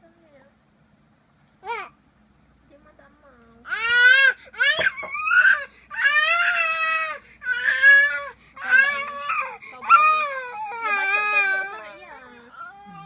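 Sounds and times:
toddler crying: 3.7s - 13.0s.

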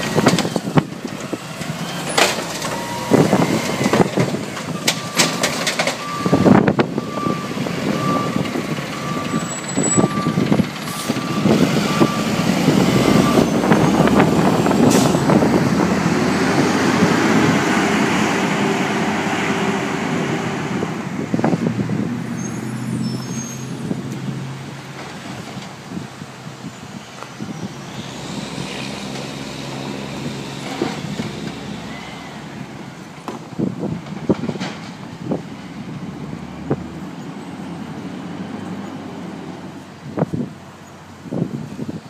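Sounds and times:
diesel truck engine: 0.0s - 42.0s
truck reversing alarm beeping: 1.9s - 15.8s.

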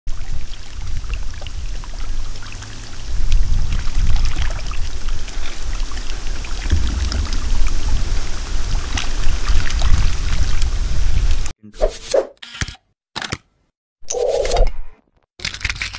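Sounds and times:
water splashing and trickling: 0.1s - 11.5s
heavy low rumble: 6.6s - 11.4s.

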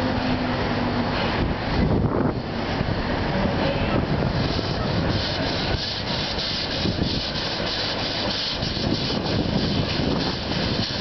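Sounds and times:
train rumbling: 0.0s - 11.0s
steam locomotive chuffing: 2.6s - 11.0s.

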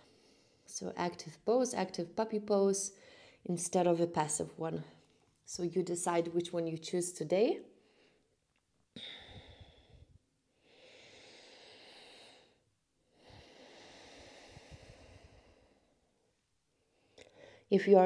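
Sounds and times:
woman breathing slowly: 0.0s - 0.7s, 2.9s - 3.5s, 7.8s - 17.7s.

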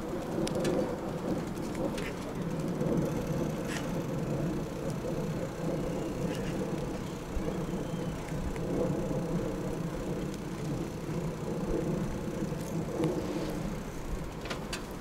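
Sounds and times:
bicycle ride rumble: 0.0s - 15.0s
faint ticks: 4.8s - 13.7s.

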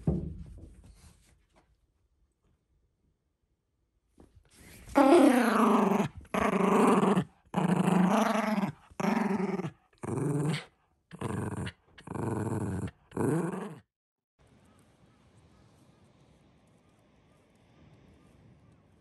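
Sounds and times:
dog growling: 4.9s - 13.8s.

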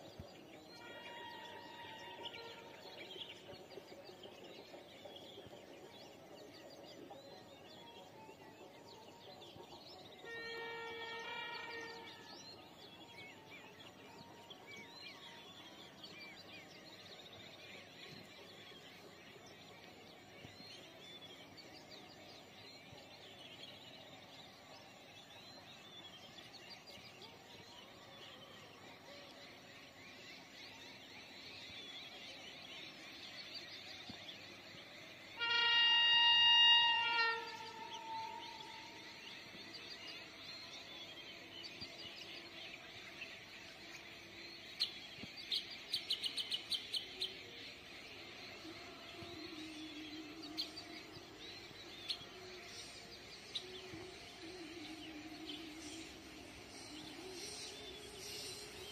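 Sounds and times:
train horn: 0.6s - 3.6s, 9.3s - 13.0s, 34.9s - 40.3s.

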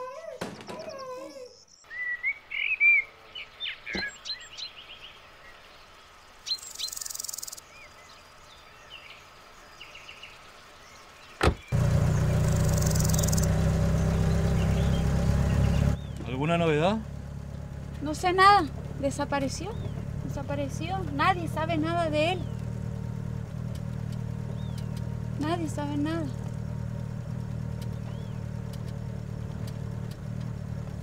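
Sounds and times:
child crying: 0.0s - 1.6s
birds chirping: 0.0s - 31.0s
car engine running: 6.8s - 31.0s
sharp thumps: 11.4s - 11.9s.

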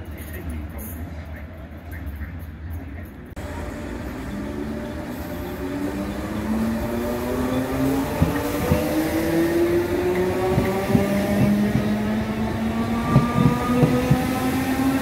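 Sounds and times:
train rumble: 0.0s - 15.0s
electric train motor whine: 3.4s - 15.0s.

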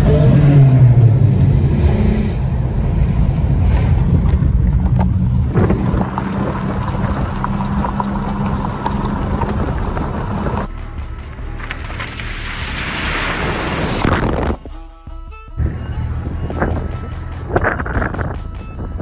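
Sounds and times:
heavy low rumble: 0.0s - 19.0s
car engine running: 2.4s - 14.5s.

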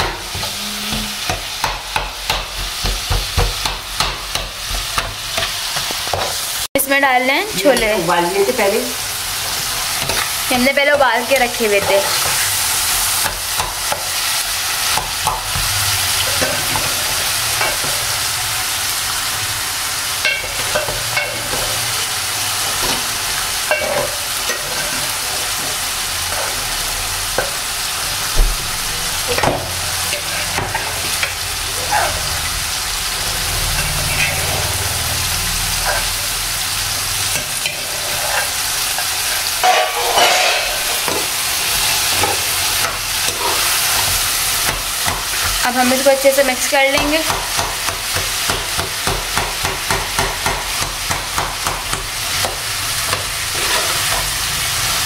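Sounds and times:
chickpeas sizzling in a pan: 0.0s - 55.0s
spoon scraping a pan: 9.4s - 18.2s, 22.6s - 26.8s, 28.9s - 32.4s, 33.3s - 34.8s, 35.7s - 36.2s, 37.3s - 46.1s, 50.7s - 54.5s.

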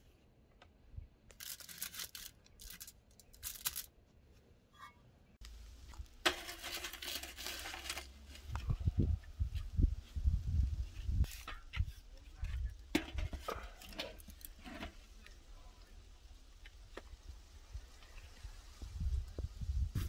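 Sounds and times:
aluminium foil crinkling: 1.3s - 3.9s, 5.9s - 8.6s.

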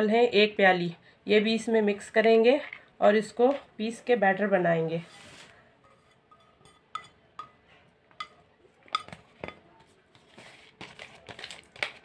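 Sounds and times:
rice being scraped: 5.0s - 6.8s
steel bowl clinking on plastic bowl: 6.3s - 9.7s.

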